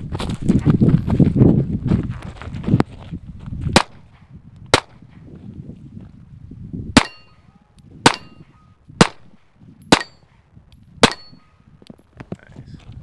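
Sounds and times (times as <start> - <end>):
pistol shots: 3.8 - 5.2, 7.0 - 7.4, 8.0 - 10.4, 11.0 - 11.6
steel target ringing: 7.0 - 7.4, 8.0 - 9.2, 9.9 - 10.3, 11.0 - 11.6.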